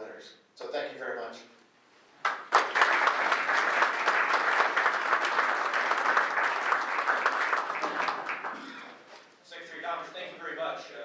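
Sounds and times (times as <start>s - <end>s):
audience applauding: 2.2s - 9.0s.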